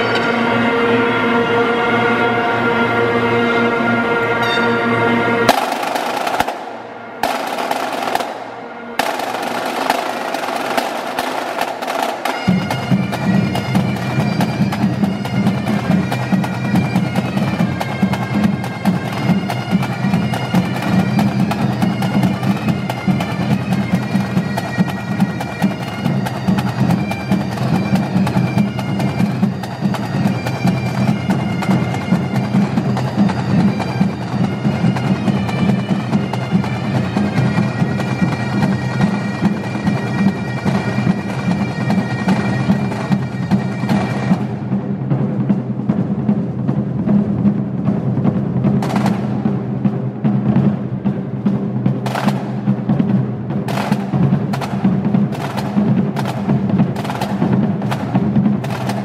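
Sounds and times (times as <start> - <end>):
bagpipes playing: 0.0 - 44.6
field drums rolls and beats: 5.5 - 59.0.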